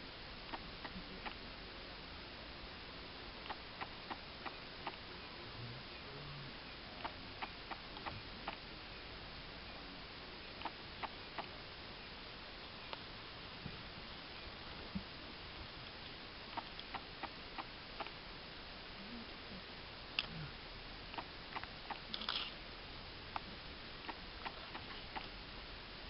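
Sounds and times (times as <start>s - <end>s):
faint hiss: 0.0s - 26.0s
small sharp clicks: 21.1s - 22.6s.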